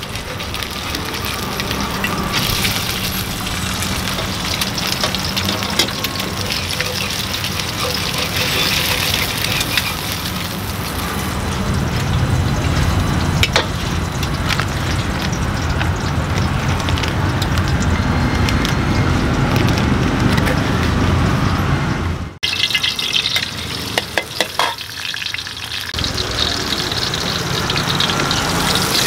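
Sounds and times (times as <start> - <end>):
food sizzling in wok: 0.0 - 18.4, 22.4 - 29.0
gas burner rumble: 0.0 - 29.0
metal clinking against pan: 23.1 - 24.9.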